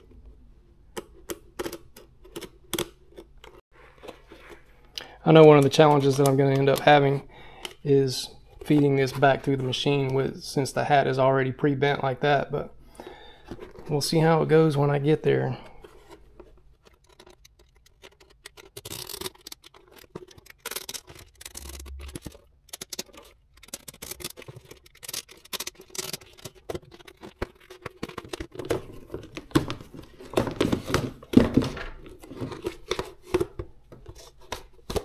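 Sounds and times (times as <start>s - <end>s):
thread snapping and tearing: 17.8s - 26.3s.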